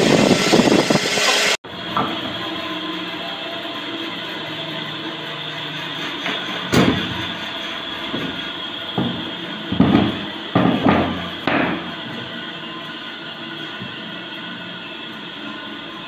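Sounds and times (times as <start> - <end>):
wooden boards knocking: 9.0 - 11.9.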